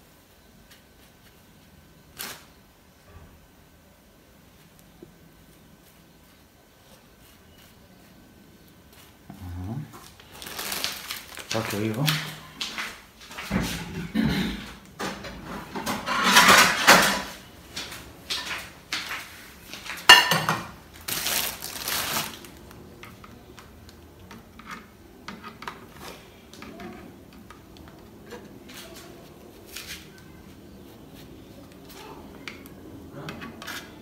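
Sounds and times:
plastic bag crinkling: 0:10.0 - 0:13.4, 0:19.8 - 0:23.6.

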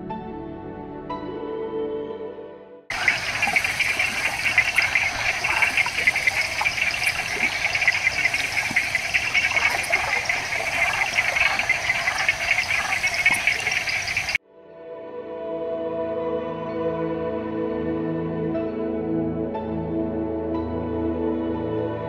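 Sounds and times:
frogs and insects trilling: 0:02.9 - 0:14.4.

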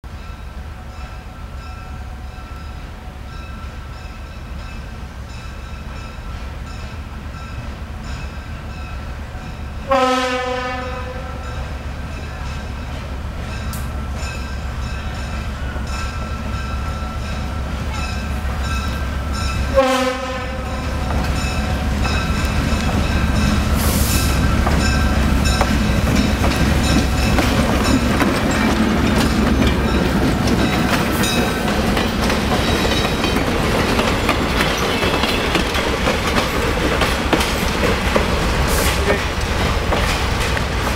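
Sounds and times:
diesel locomotive engine drone: 0:00.0 - 0:40.9
wheels clacking over rail joints: 0:20.8 - 0:40.9.

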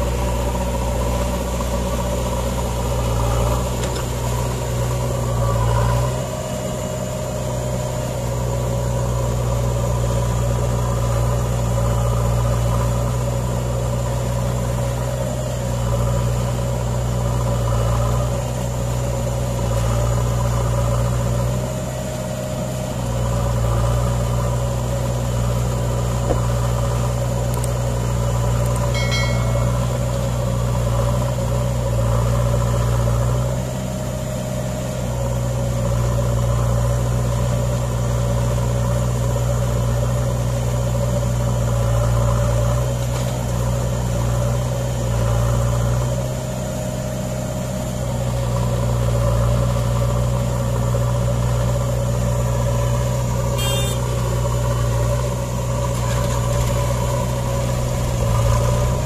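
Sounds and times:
diesel engines droning: 0:00.0 - 0:59.0
short electronic chime: 0:28.9 - 0:30.3.

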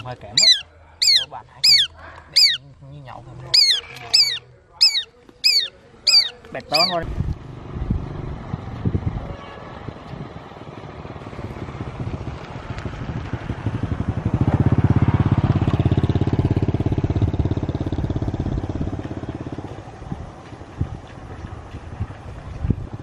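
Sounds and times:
small engine passing by: 0:06.8 - 0:23.0.

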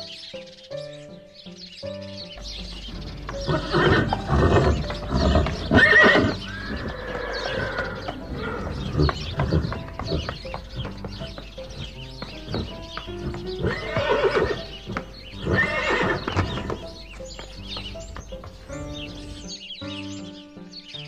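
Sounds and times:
horse neighing: 0:03.3 - 0:16.9.

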